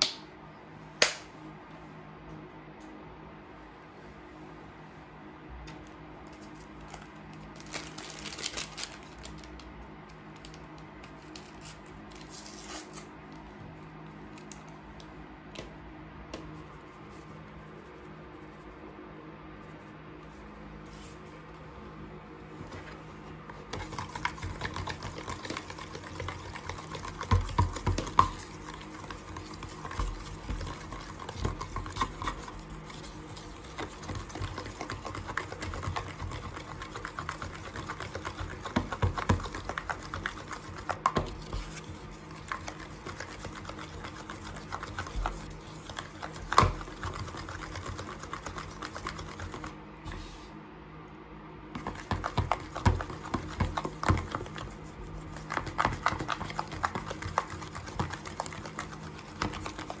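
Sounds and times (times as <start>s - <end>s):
spoon stirring thick slime: 22.6s - 50.4s, 51.8s - 60.0s.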